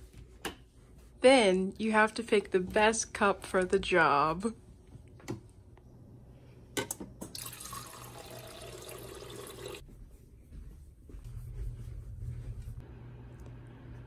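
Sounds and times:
water pouring into a plastic cup: 7.4 - 9.8.

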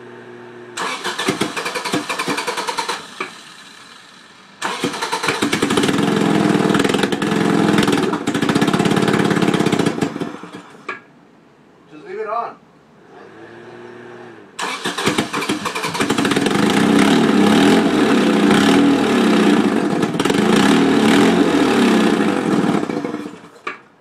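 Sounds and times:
car engine cranking on starter: 0.8 - 10.9, 14.6 - 17.0.

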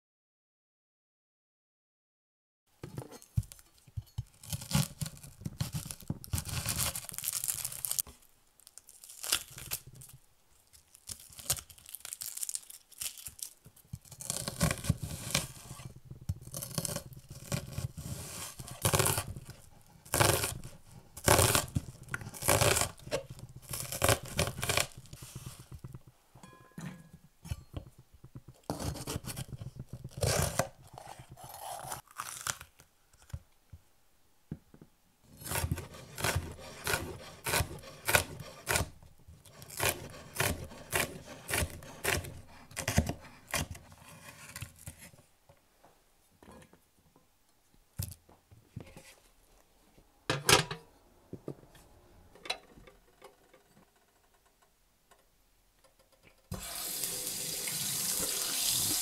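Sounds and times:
scraping and handling sounds: 2.8 - 33.5, 34.7 - 47.3, 48.0 - 54.6
knife chopping on cutting board: 35.4 - 39.0, 39.6 - 43.7.

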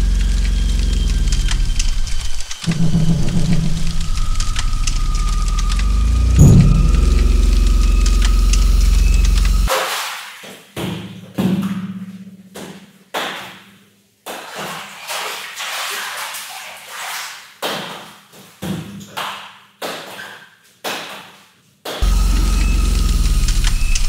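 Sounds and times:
music: 2.7 - 9.7.

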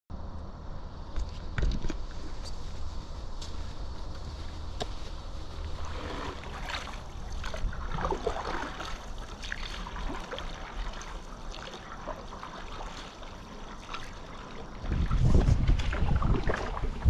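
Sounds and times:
water trickling and lapping: 1.6 - 17.0
paddle splashing in water: 5.6 - 17.0.

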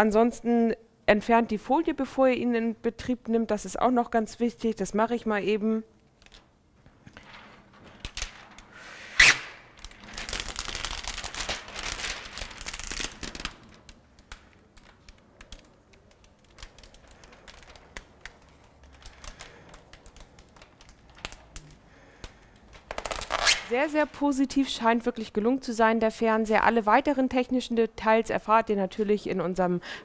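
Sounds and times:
plastic film peeling and crackling: 6.0 - 24.1
plastic sheet crinkling: 7.0 - 24.1
plastic film snapping: 7.1 - 23.7.

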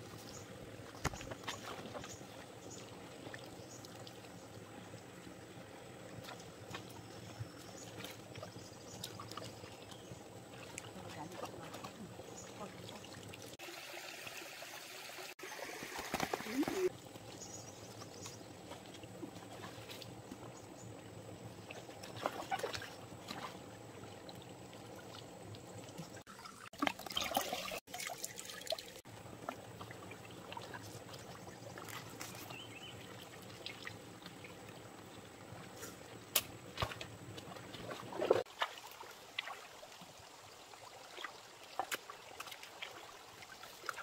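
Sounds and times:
stream trickling over rocks: 0.0 - 44.0
feet splashing in water: 21.7 - 23.7, 36.4 - 40.0.

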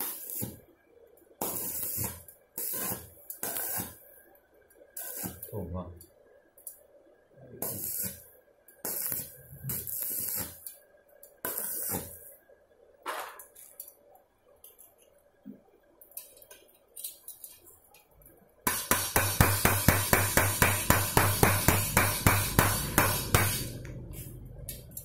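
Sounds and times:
welding arc crackling: 0.0 - 0.7, 1.3 - 4.2, 4.8 - 5.8, 7.5 - 12.4, 18.7 - 25.0.

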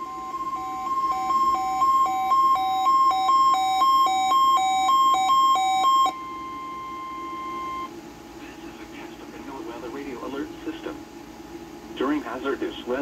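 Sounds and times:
alternating two-pitch alert beeping: 0.0 - 7.9
steady warning alarm tone: 0.0 - 7.9.

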